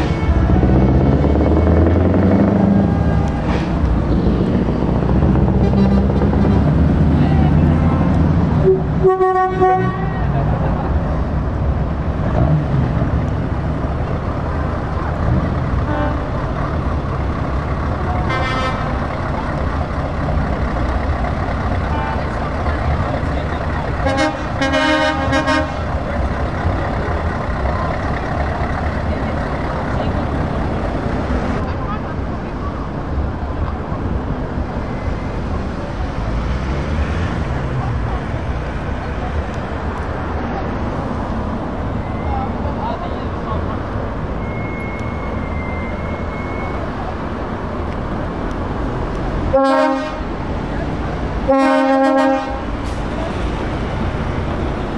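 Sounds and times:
diesel truck engine rumble: 0.0s - 54.9s
truck air horn blasts: 5.6s - 6.7s, 8.6s - 10.2s, 15.9s - 16.3s, 18.3s - 19.0s, 24.0s - 25.9s, 49.5s - 50.3s, 51.5s - 53.0s
truck diesel engine running: 10.4s - 35.6s.

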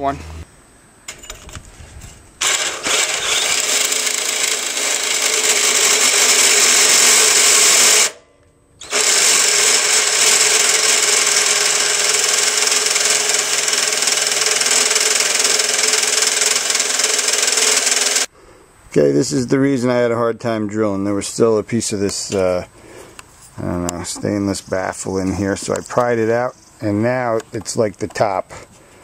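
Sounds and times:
drill cutting through metal: 2.4s - 8.2s, 8.8s - 18.3s.

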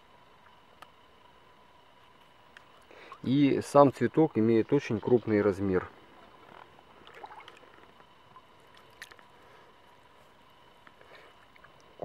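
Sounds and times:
small water splashes: 7.0s - 9.3s.

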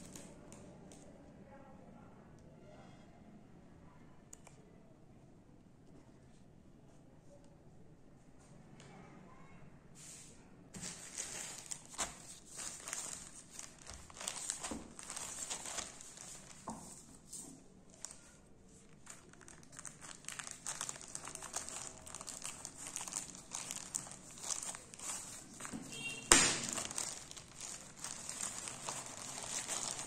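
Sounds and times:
plastic bag crinkling: 10.8s - 30.0s.

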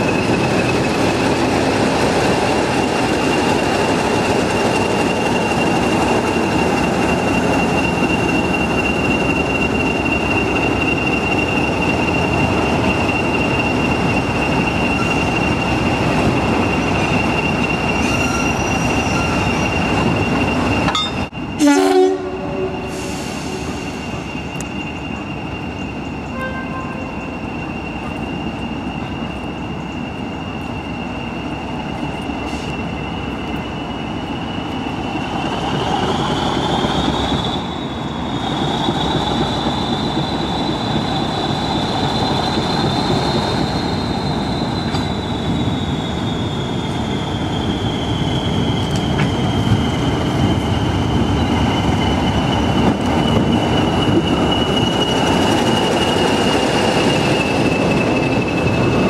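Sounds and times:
high wheel squeal: 0.0s - 59.0s
train rumble: 0.0s - 59.0s
train horn blast: 21.6s - 23.6s, 26.3s - 27.2s.

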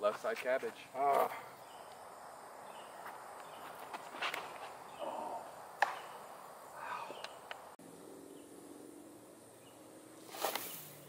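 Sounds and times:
low insect buzz: 1.6s - 11.0s
shuffling footsteps: 2.9s - 5.0s
sharp snap: 5.8s - 6.2s, 10.3s - 10.9s
short rustle: 10.2s - 11.0s.

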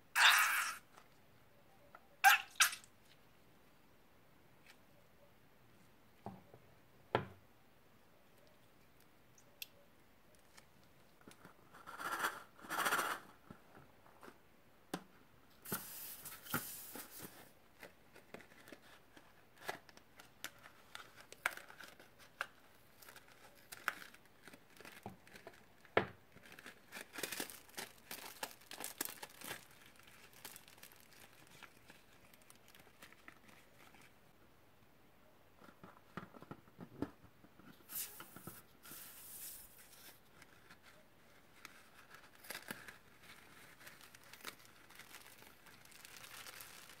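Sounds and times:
balloon rubber crinkling and tearing: 0.1s - 1.0s, 15.6s - 34.2s, 37.8s - 47.0s.

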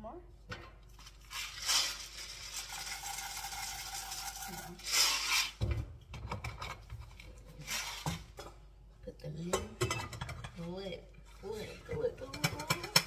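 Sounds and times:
popcorn kernels pouring into pot: 1.2s - 5.6s.

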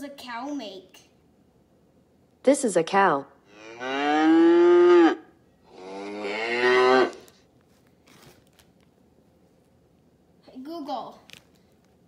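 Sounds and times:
cow mooing through speaker: 3.5s - 7.2s.

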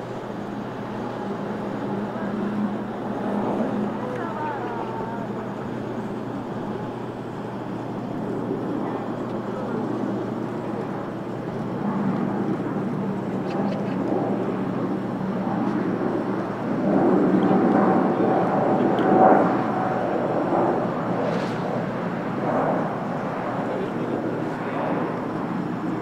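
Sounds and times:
high engine whine: 0.0s - 26.0s
jet engines rumbling: 0.0s - 26.0s.

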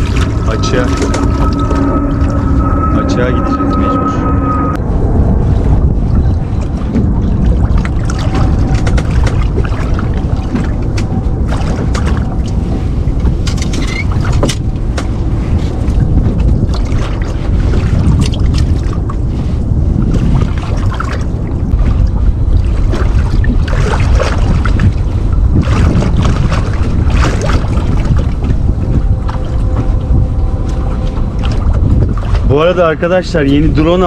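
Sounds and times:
outboard motor rumble: 0.0s - 34.0s
wind buffeting microphone: 0.0s - 34.0s
crackling water splashes: 6.3s - 19.3s, 20.0s - 28.6s.

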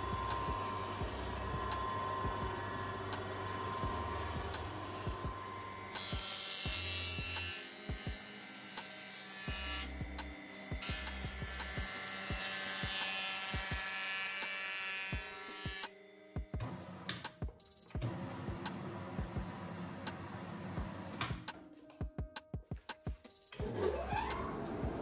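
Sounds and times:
background music with beat: 0.0s - 8.2s, 9.5s - 13.8s, 16.4s - 18.6s, 19.2s - 19.5s, 21.3s - 23.7s
jointer cutting wood: 0.0s - 16.0s.

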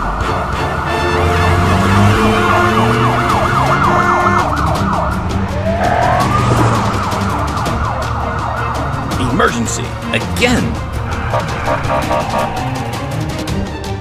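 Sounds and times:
siren in a fast yelp: 2.3s - 6.3s.

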